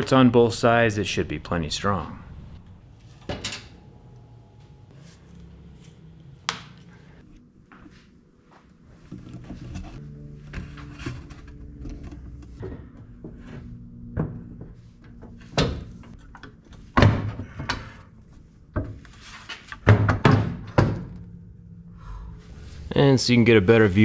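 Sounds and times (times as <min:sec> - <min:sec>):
background music: 0:08.7 - 0:24.0.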